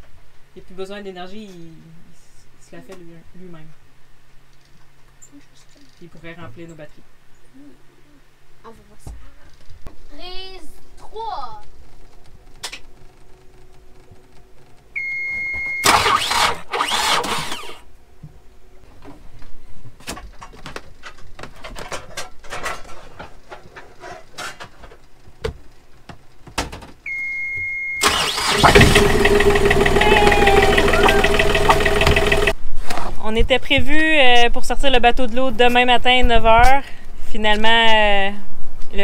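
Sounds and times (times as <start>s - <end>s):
diesel engine cranking and running: 15.8s - 17.8s, 28.0s - 32.6s
scattered knocks: 31.1s - 32.5s.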